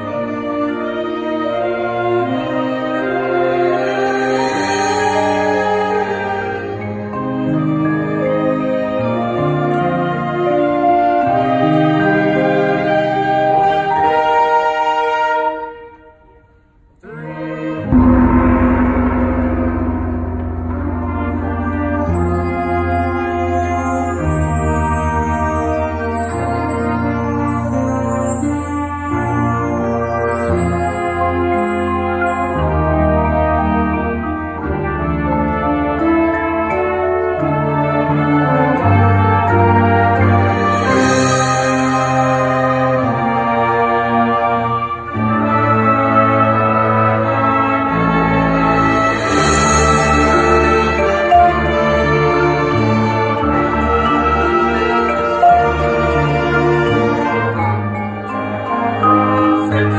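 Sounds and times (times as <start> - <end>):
trumpet: 0.0 - 59.9
marching band winds holding chords: 17.1 - 59.9
low drums: 17.8 - 23.3
cymbal crash: 17.8 - 25.5, 48.5 - 54.0.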